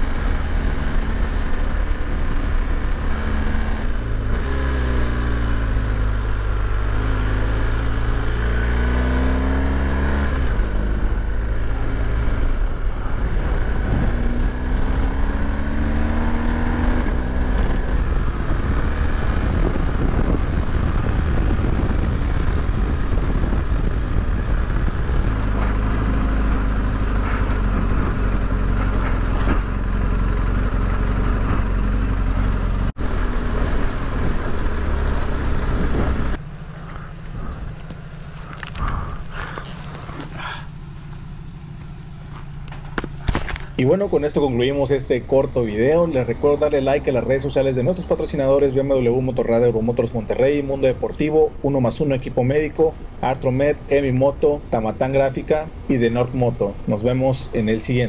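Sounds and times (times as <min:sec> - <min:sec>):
motorcycle engine revving: 0:00.0 - 0:51.0
dirt road noise: 0:00.0 - 0:58.0
wind rushing: 0:17.4 - 0:28.5.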